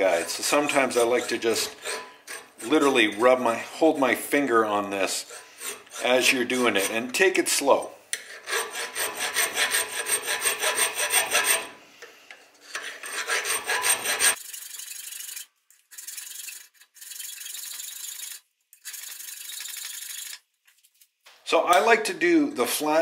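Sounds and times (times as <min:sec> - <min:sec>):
hand file rasping on steel: 0:00.0 - 0:11.8, 0:12.6 - 0:14.4.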